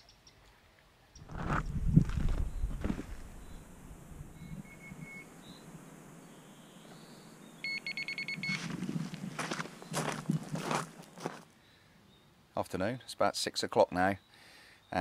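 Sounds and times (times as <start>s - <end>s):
footsteps: 1.2s - 3.4s, 8.4s - 11.5s
electronic bite alarm beeping: 4.4s - 5.3s, 7.6s - 8.7s.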